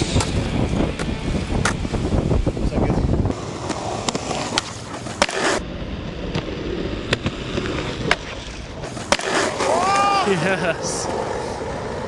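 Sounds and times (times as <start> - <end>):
skateboard wheels rolling on pavement: 0.0 - 12.0
skateboard clacks: 3.6 - 5.6, 6.3 - 10.2.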